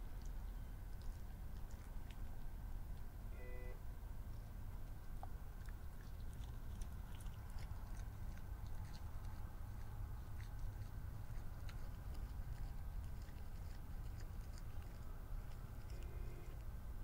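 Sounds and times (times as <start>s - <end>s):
low rumble and hiss: 0.0s - 17.0s
faint tone: 3.3s - 3.8s.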